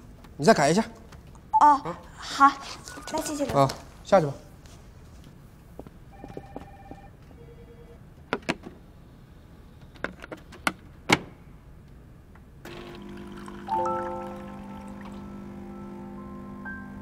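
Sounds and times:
short electronic beeps: 2.9s - 3.5s.

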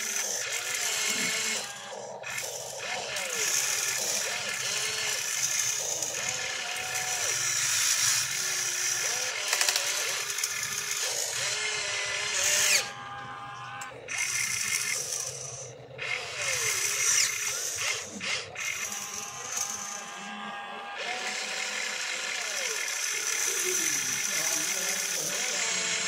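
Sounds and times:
electric motors whining: 0.0s - 26.0s.

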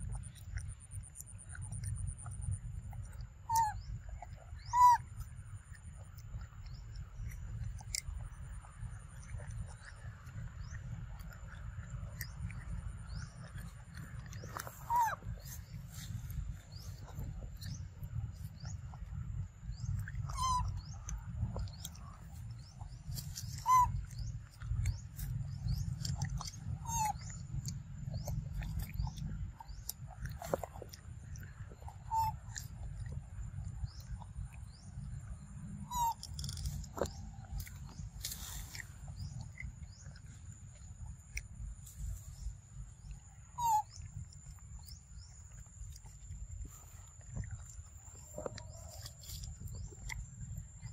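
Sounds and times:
low rumble: 0.0s - 50.9s
monkey chewing fruit: 0.0s - 50.9s
bird call: 20.2s - 21.1s, 23.4s - 24.2s, 35.8s - 37.2s, 43.6s - 44.1s.

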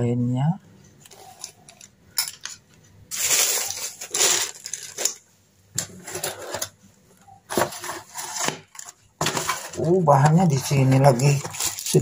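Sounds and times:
metal parts clinking: 1.4s - 5.2s
plastic bag crinkling: 3.1s - 5.3s, 7.6s - 12.0s.

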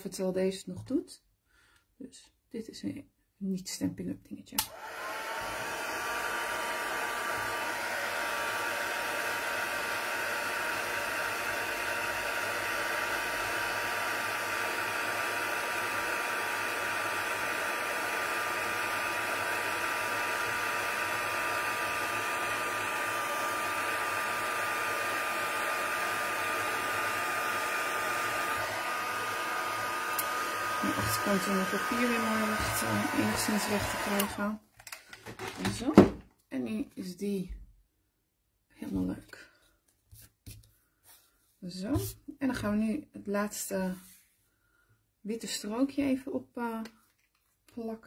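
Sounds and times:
heat gun fan whining: 16.0s - 34.4s.

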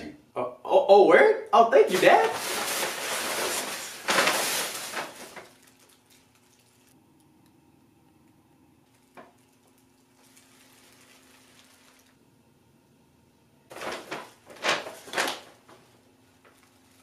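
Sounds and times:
tissue paper rustling: 1.9s - 6.9s, 10.1s - 12.2s, 13.7s - 15.8s.

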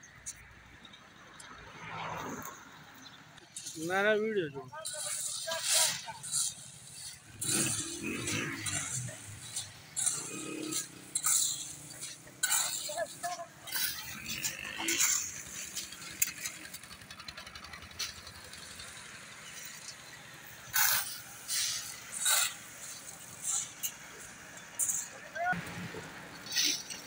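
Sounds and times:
gravel rattling: 3.0s - 27.0s
shovel scraping into gravel: 4.8s - 16.8s, 19.4s - 25.1s.

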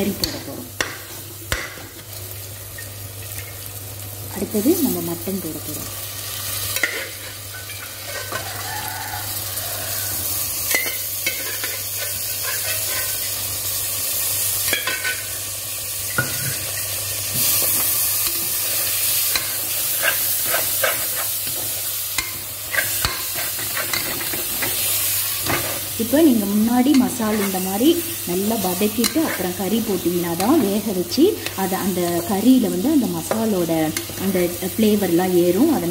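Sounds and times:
meat sizzling in a pot: 0.0s - 35.9s
metal ladle scraping a pot: 6.8s - 8.6s.

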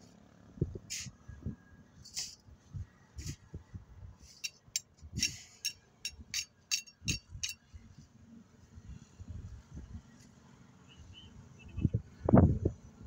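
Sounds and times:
shovel clinking on metal pan: 5.2s - 7.6s.

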